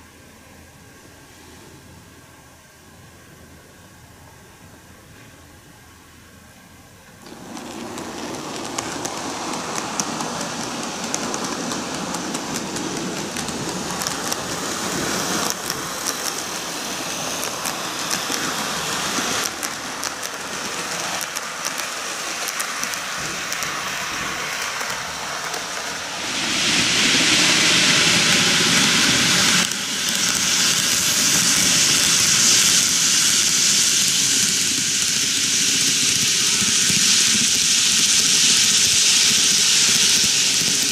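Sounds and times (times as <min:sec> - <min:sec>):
model train motors whirring: 0:07.1 - 0:40.9
small clicks: 0:19.4 - 0:23.8.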